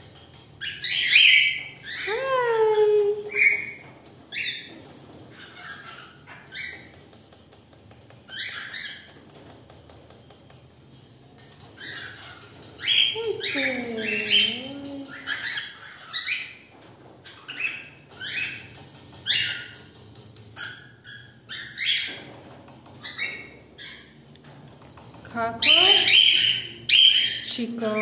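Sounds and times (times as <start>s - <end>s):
cockatiels chirping: 0.3s - 7.1s, 8.1s - 9.6s, 11.4s - 24.2s, 25.6s - 28.0s.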